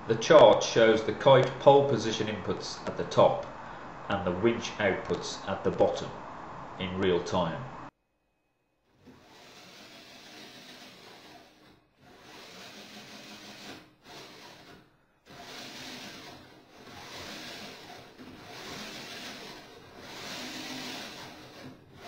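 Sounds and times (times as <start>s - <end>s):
electric winch motors whirring: 9.0s - 22.0s.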